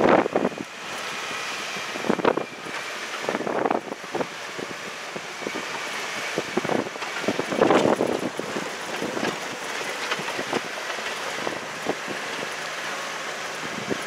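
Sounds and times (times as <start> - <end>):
vehicle driving noise: 0.0 - 14.0.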